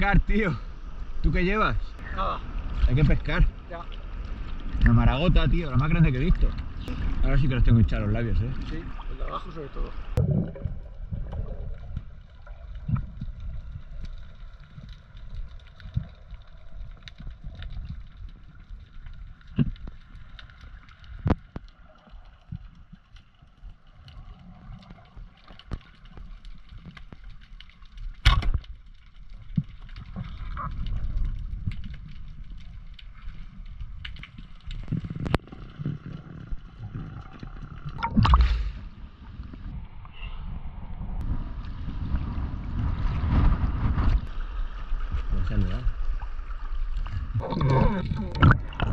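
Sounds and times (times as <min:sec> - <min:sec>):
underwater clicks and gurgles: 0:00.0 - 0:48.9
underwater rush of water: 0:00.0 - 0:48.9
camera breaking water surface: 0:38.0 - 0:38.8.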